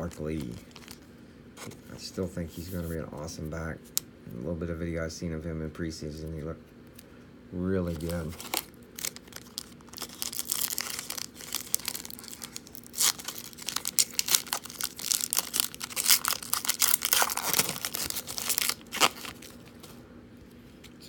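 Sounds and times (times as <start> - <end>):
foil wrapper tearing and crinkling: 0.0 - 1.0, 7.9 - 19.8.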